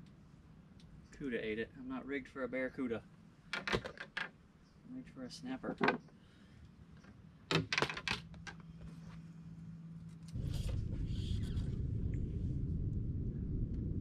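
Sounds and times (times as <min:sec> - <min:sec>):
steady low rumbling: 0:09.3 - 0:14.0.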